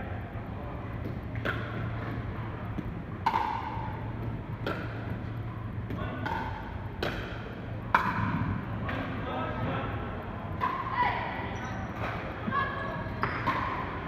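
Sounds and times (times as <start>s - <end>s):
steady low hum: 0.0s - 14.0s
paddles hitting plastic ball: 5.8s - 8.4s.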